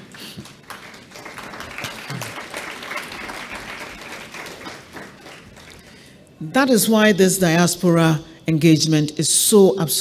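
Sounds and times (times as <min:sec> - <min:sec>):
audience applauding: 0:00.0 - 0:06.1.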